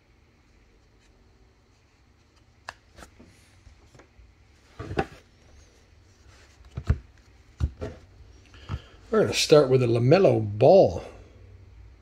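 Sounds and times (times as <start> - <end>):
cards clicking and tapping: 6.6 - 8.0.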